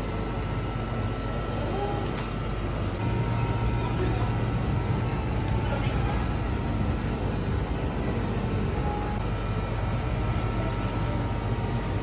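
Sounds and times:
faint steady whines: 0.0s - 12.0s
low mechanical hum and rumble: 0.0s - 12.0s.

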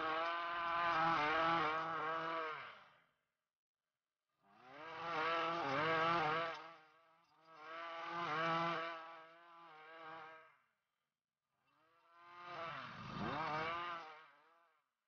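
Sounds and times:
string trimmer engine revving: 0.0s - 2.6s, 4.6s - 6.8s, 7.6s - 10.3s, 12.2s - 14.2s.

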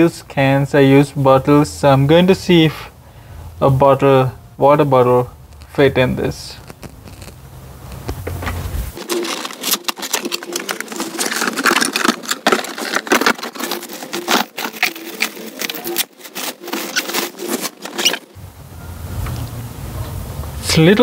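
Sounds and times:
plastic and cardboard crinkling: 6.4s - 18.4s.

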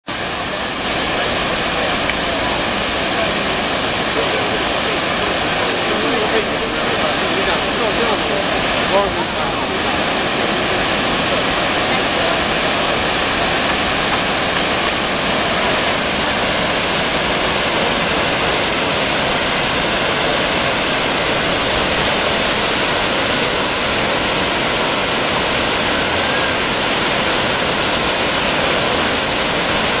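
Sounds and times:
water rushing over spillway: 0.0s - 30.0s.

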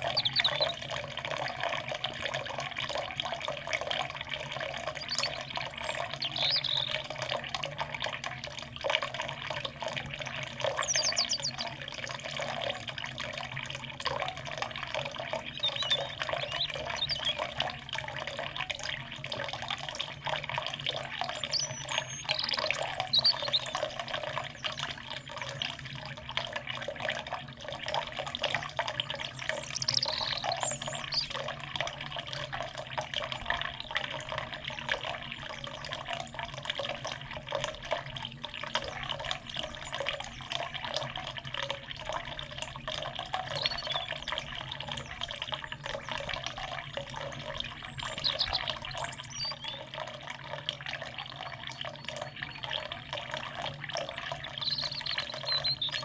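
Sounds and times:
faint bird calls: 0.0s - 1.4s, 10.2s - 11.8s, 21.2s - 24.9s
fountain water splashing: 0.0s - 56.0s.

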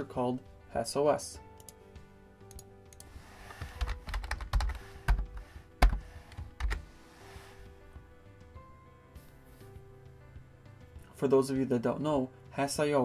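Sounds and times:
typing on computer keyboard: 2.5s - 6.8s.

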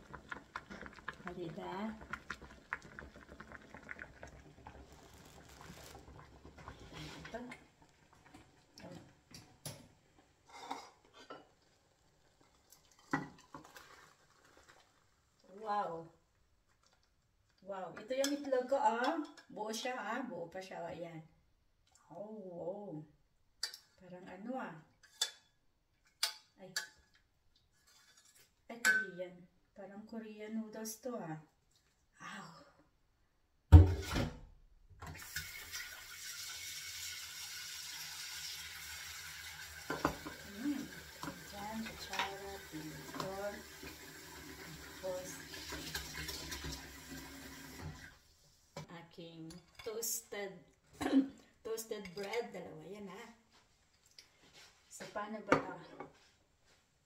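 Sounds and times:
metal saucepan and spoon clinking: 27.9s - 29.1s
tap running with steady hiss: 35.0s - 48.9s.

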